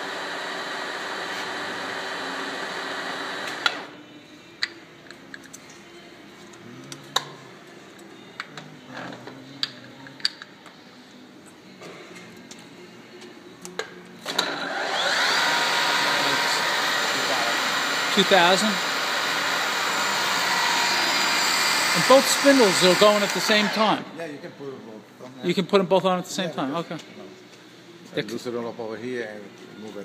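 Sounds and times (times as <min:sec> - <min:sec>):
milling machine spindle running: 0:14.6 - 0:23.8.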